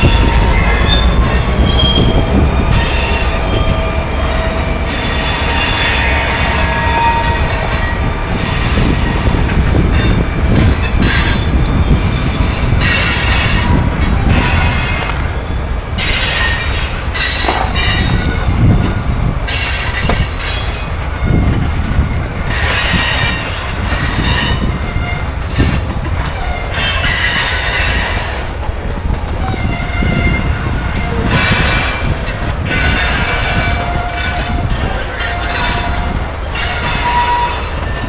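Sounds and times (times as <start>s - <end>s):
high-pitched wheel squeal: 0.0s - 18.6s, 29.5s - 38.0s
freight train rumble and clatter: 0.0s - 38.0s.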